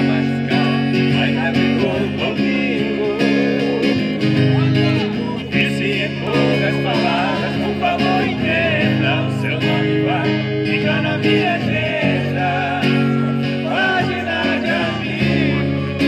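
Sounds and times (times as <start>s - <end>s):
acoustic guitar playing chords: 0.0s - 16.0s
group of voices singing: 0.0s - 16.0s.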